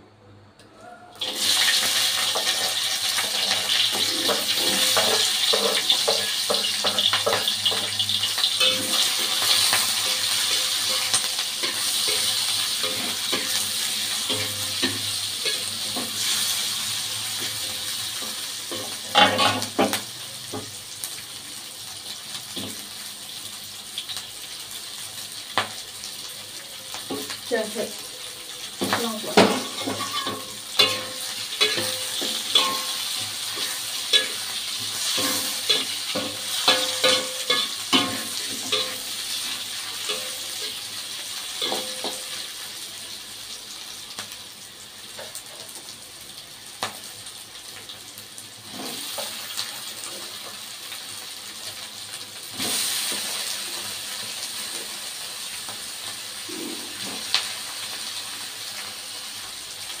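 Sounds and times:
food sizzling in hot oil: 1.1s - 60.0s
metal spatula scraping a pan: 1.2s - 20.0s, 29.6s - 40.9s.

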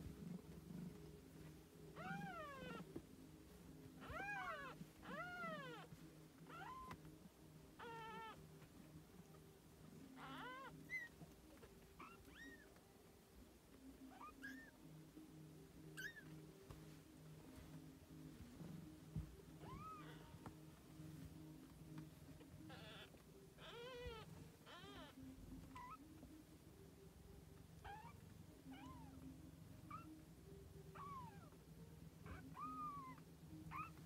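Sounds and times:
low steady hum: 0.0s - 34.0s
kittens mewing: 22.7s - 26.0s.

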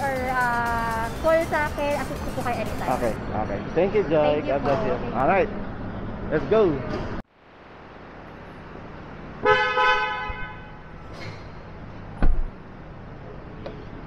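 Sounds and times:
car horn honking: 9.4s - 11.0s
heavy thump: 12.2s - 12.5s.

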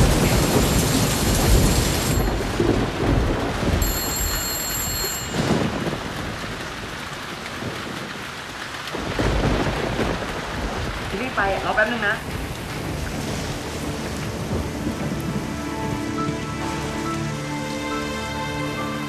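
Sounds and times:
thunder rumbling: 0.0s - 18.0s
heavy rain: 0.0s - 19.0s.

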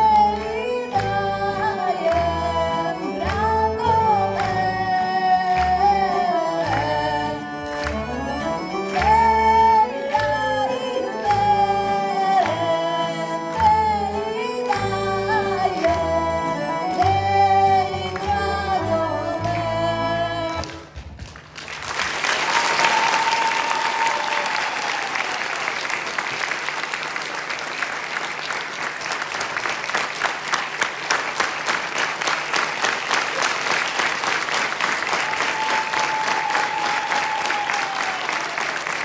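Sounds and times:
music: 0.0s - 21.7s
audience applauding: 20.6s - 39.0s.

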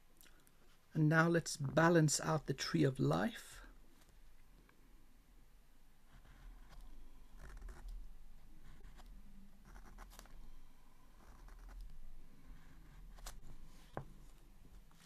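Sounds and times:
pen scratching on paper: 6.1s - 7.9s, 8.6s - 10.4s, 11.2s - 11.8s, 12.4s - 13.9s.

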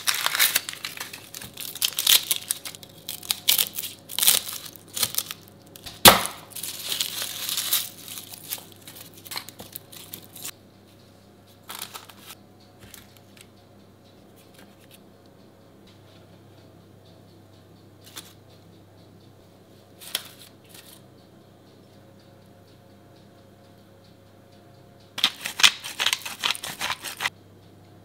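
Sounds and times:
garlic skins rustling: 0.0s - 5.9s, 6.5s - 10.5s, 25.2s - 27.3s
onion skin crackling and tearing: 0.0s - 10.5s, 25.2s - 27.3s.

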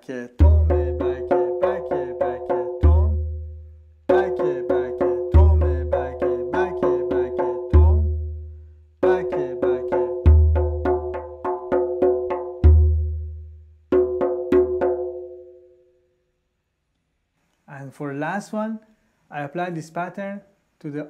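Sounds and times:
goblet drum played by hand: 0.4s - 15.7s.

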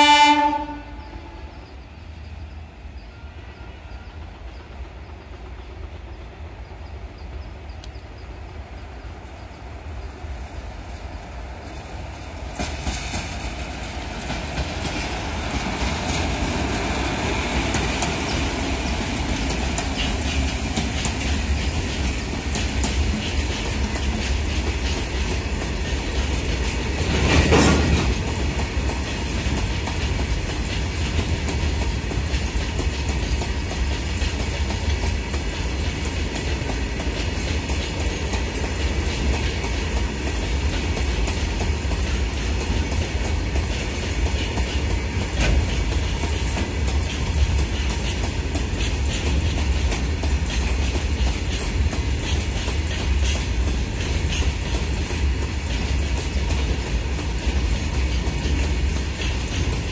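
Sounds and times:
electric locomotives rumbling past: 0.0s - 59.9s
wagon wheels clickety-clack: 17.5s - 59.9s.

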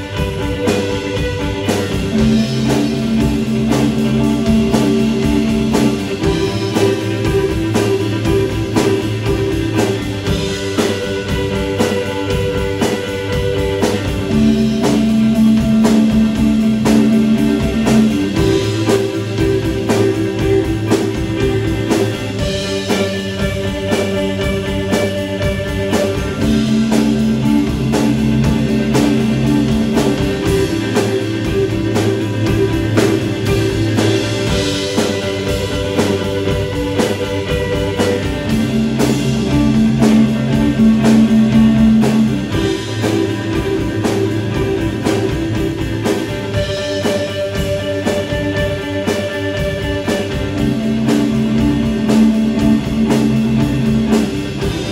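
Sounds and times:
bass guitar: 0.0s - 54.9s
drum kit beat: 0.0s - 54.9s
electric guitars ringing notes: 0.0s - 54.9s.

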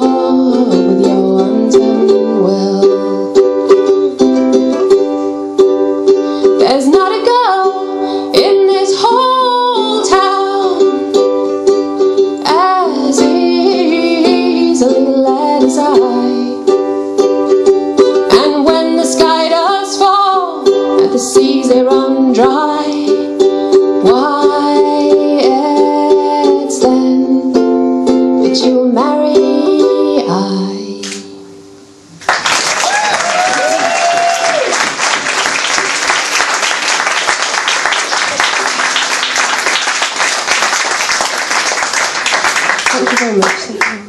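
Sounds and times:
woman singing: 0.0s - 3.4s, 6.5s - 11.1s, 12.4s - 16.8s, 18.2s - 27.7s, 28.4s - 31.3s
ukulele strumming: 0.0s - 31.8s.

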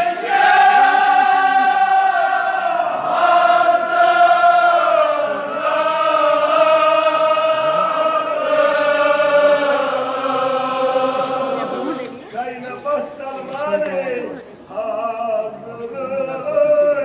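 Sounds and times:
men chanting together: 0.0s - 12.0s.

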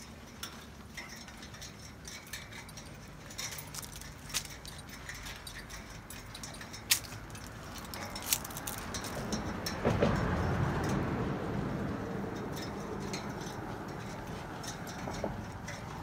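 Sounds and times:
footsteps on steel grate: 0.0s - 10.6s
collar tags jingling: 0.0s - 16.0s
dog claws on steel grate: 1.0s - 9.8s.

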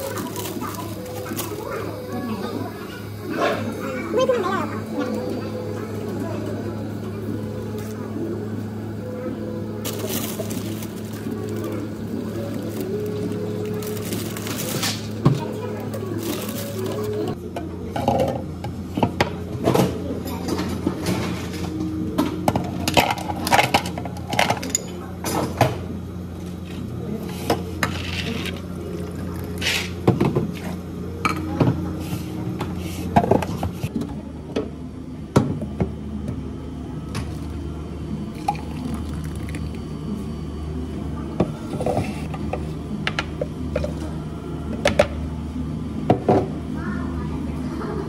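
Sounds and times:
grapes and ice clinking in blender jar: 9.8s - 17.4s
juice pouring into glass: 38.3s - 39.8s.

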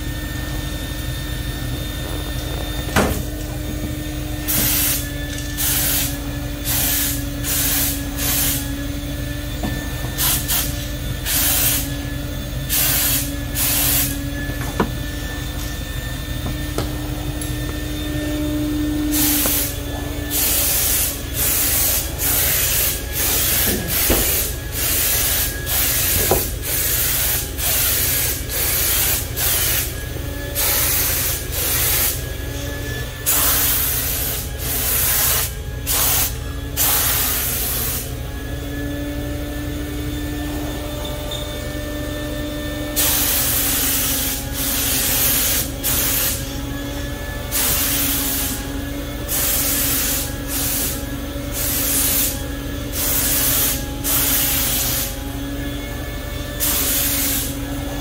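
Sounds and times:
air compressor motor hum: 0.0s - 58.0s
spray gun hissing bursts: 4.5s - 8.8s, 10.2s - 12.0s, 12.6s - 14.4s, 19.1s - 30.0s, 30.6s - 32.2s, 33.2s - 38.2s, 42.9s - 46.5s, 47.5s - 55.2s, 56.6s - 57.6s.

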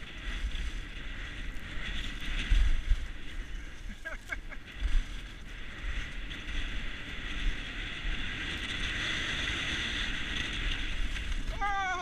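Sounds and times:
skis scraping over snow: 0.0s - 12.0s
wind on microphone: 0.0s - 12.0s.

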